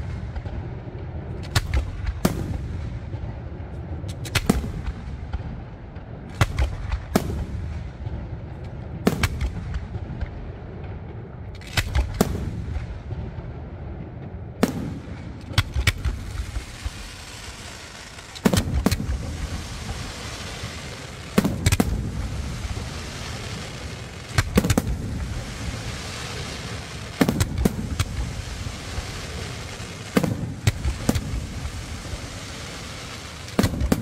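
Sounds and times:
firework shells bursting: 14.7s - 34.0s.

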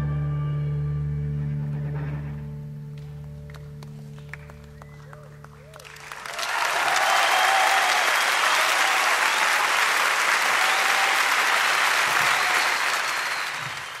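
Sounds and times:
audience applauding: 3.0s - 14.0s.

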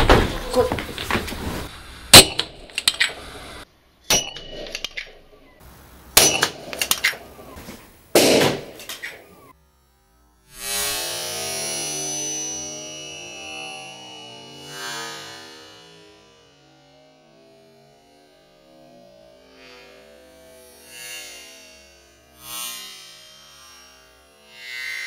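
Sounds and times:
sharp cracks: 2.1s - 5.5s, 6.1s - 9.6s
firecracker bang: 6.2s - 9.1s.

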